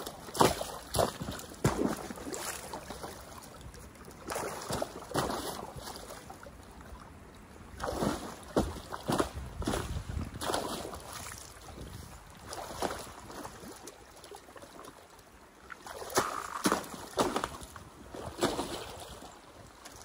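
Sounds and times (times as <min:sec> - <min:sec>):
water sloshing around legs: 0:00.0 - 0:20.0.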